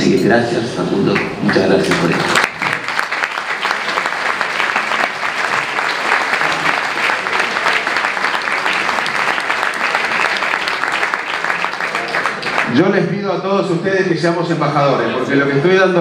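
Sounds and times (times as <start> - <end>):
audience applauding: 1.1 - 12.8.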